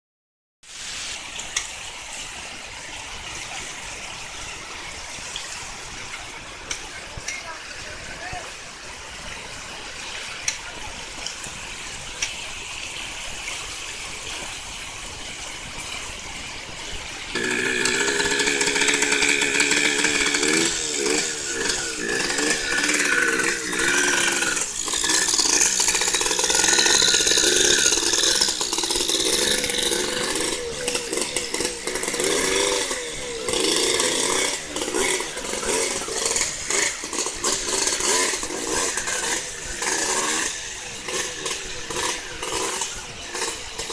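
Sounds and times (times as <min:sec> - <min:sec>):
rushing stream water: 0:00.6 - 0:43.9
dirt bike engine revving: 0:16.7 - 0:43.9.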